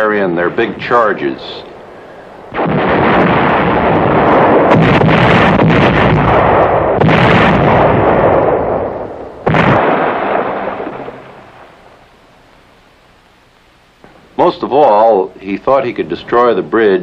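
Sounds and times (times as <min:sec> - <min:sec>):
artillery blasts: 0:00.0 - 0:12.3.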